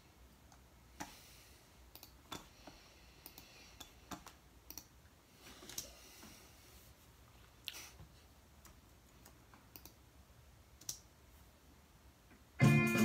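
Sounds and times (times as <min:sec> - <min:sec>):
faint sharp clicks: 0:01.9 - 0:02.4, 0:03.2 - 0:04.9, 0:08.6 - 0:10.0.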